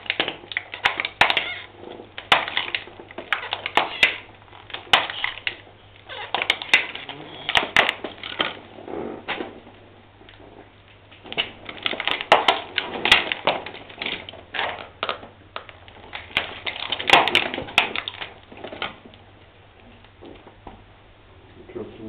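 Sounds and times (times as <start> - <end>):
plastic cracking under tyre: 0.0 - 20.8.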